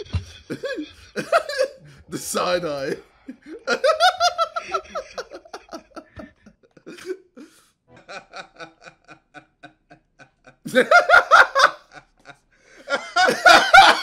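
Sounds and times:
man laughing: 0:00.0 - 0:14.0.

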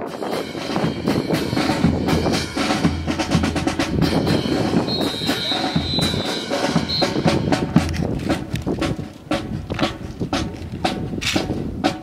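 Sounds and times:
high steady tone: 0:03.7 - 0:07.6
boots stamping in unison: 0:06.9 - 0:12.0
rifles clacking and slapping: 0:07.8 - 0:11.5.

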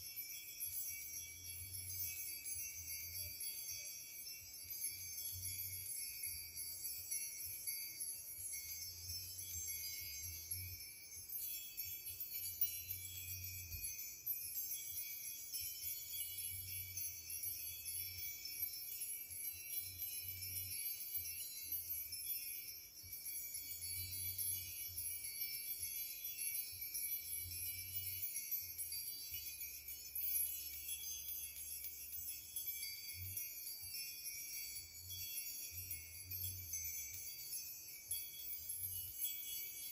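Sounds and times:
wind chimes tinkling: 0:00.0 - 0:39.9.

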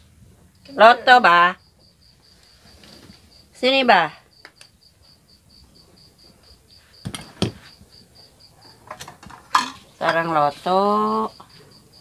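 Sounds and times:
cricket chirping: 0:00.5 - 0:12.0
sharp knocks: 0:07.0 - 0:07.6.

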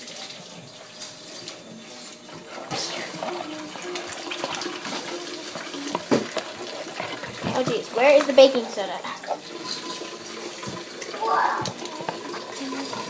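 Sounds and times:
tap water running: 0:00.0 - 0:13.0
faint voices: 0:01.4 - 0:06.4.

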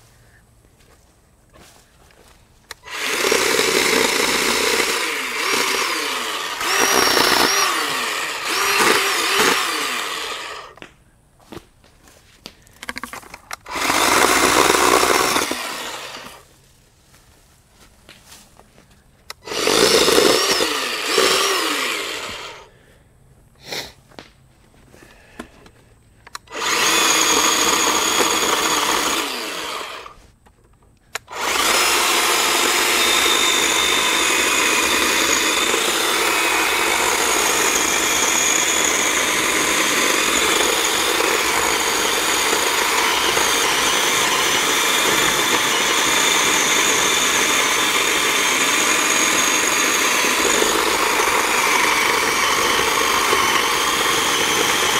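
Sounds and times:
electric chainsaw cutting log: 0:02.7 - 0:10.9, 0:13.6 - 0:16.5, 0:19.3 - 0:22.7, 0:26.3 - 0:30.2, 0:31.1 - 0:54.9.

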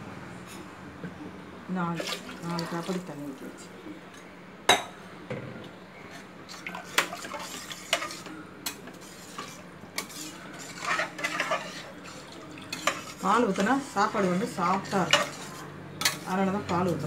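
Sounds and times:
ladle stirring liquid: 0:02.0 - 0:04.1, 0:06.1 - 0:17.0.

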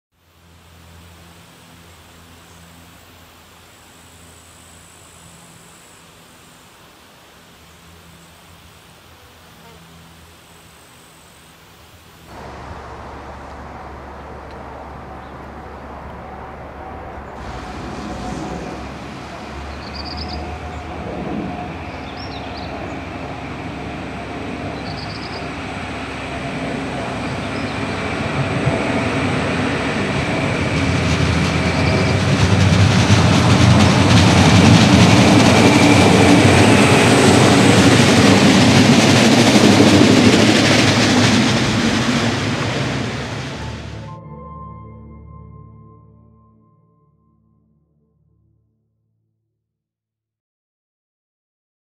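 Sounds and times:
diesel railcar engine: 0:12.1 - 0:44.1
train wheels on rails: 0:12.3 - 0:44.0.

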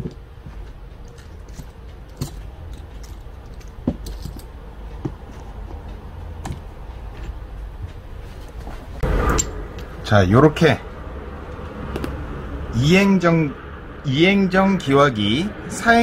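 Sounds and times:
small parts clicking and tapping: 0:00.0 - 0:06.6.

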